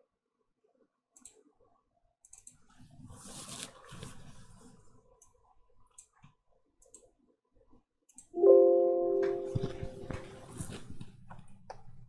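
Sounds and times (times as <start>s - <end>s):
computer mouse clicks: 1.2s - 1.5s, 2.2s - 2.6s, 5.2s - 7.2s, 8.1s - 8.3s
soft rustling: 2.8s - 5.1s, 9.5s - 11.5s.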